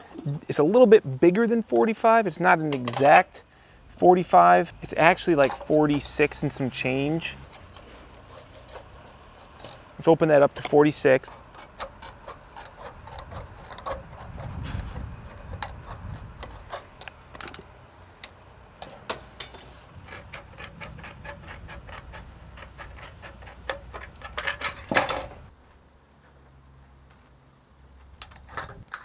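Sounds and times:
sheet metal clicks and rattles: 0:10.6 - 0:25.5.

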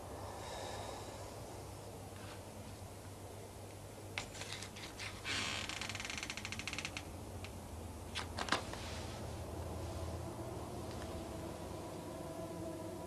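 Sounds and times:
low hum: 0:00.0 - 0:03.6, 0:08.7 - 0:13.0.

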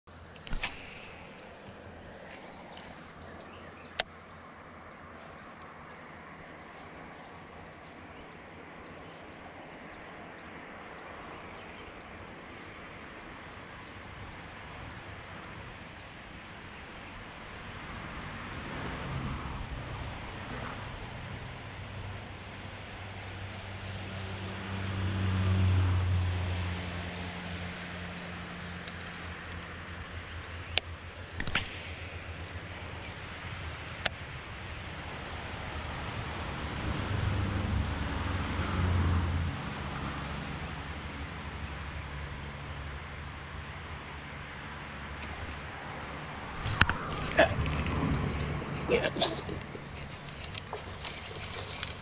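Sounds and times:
crickets chirping: 0:00.1 - 0:52.0
sharp click: 0:00.4 - 0:01.4, 0:30.7 - 0:32.2.

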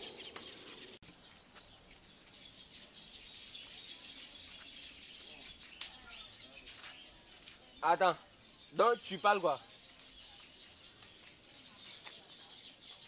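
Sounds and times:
small birds chirping: 0:00.0 - 0:13.0.

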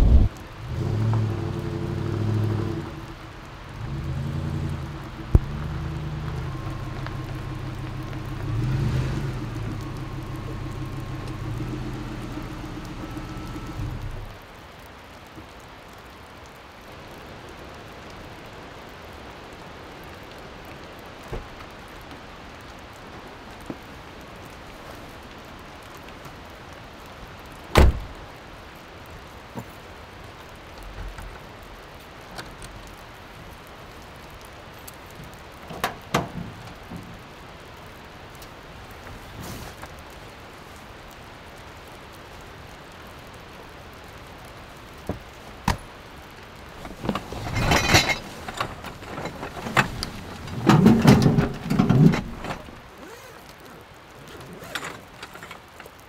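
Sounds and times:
steady rain falling: 0:00.0 - 0:56.0
truck door shutting: 0:27.8 - 0:28.2
rustling of canvas bags: 0:45.2 - 0:56.0.

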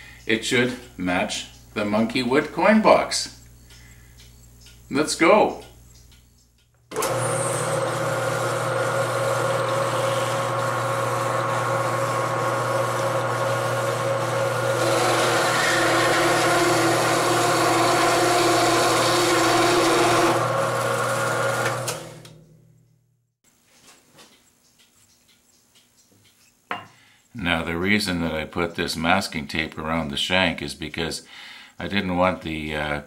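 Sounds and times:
bandsaw cutting steel: 0:06.9 - 0:22.4.

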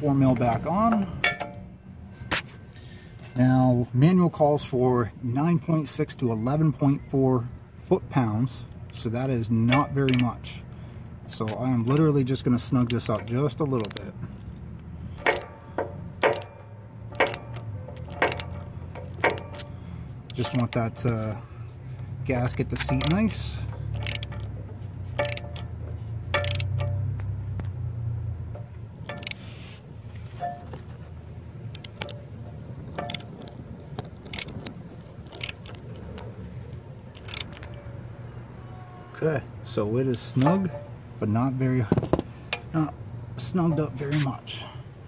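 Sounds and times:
ratchet wrench clicking: 0:09.7 - 0:10.4, 0:12.8 - 0:14.1, 0:15.1 - 0:21.4, 0:22.4 - 0:27.2, 0:28.5 - 0:29.6, 0:31.6 - 0:32.3, 0:32.9 - 0:36.2, 0:37.1 - 0:37.9.

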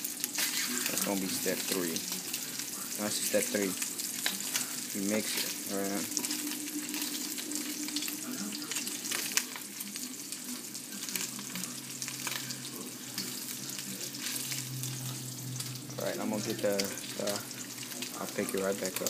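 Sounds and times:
sausage sizzling in hot oil: 0:00.0 - 0:19.0.

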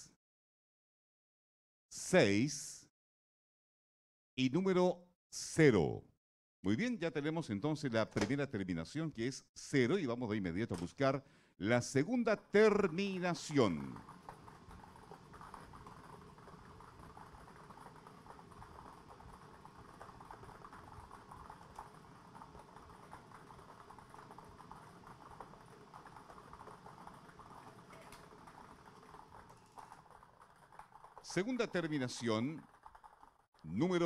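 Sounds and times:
plastic balls clattering in machine: 0:12.8 - 0:33.5.

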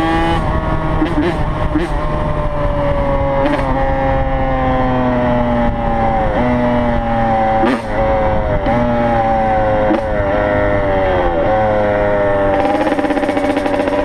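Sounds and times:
motorcycle engine cruising: 0:00.0 - 0:14.0.

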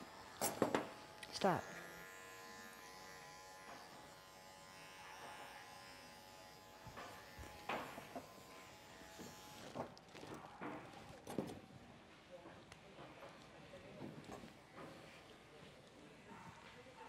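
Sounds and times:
electric clippers buzzing: 0:00.0 - 0:09.8.

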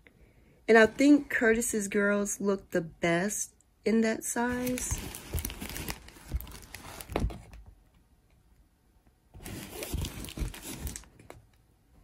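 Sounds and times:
plastic film crinkling: 0:04.5 - 0:07.4, 0:09.4 - 0:11.2.

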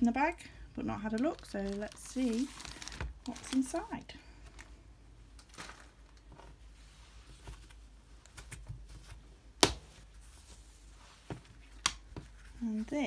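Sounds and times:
fabric rustling: 0:01.0 - 0:04.7, 0:08.8 - 0:13.0.

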